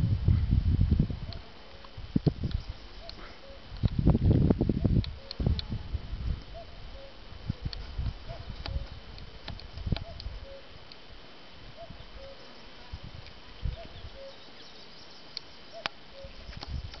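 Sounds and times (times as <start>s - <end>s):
faint outdoor hiss: 0.0s - 17.0s.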